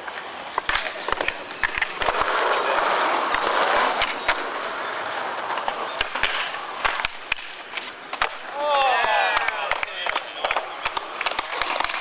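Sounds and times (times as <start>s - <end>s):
skateboard wheels rolling on concrete: 0.0s - 12.0s
skateboards clacking on ground: 0.0s - 12.0s.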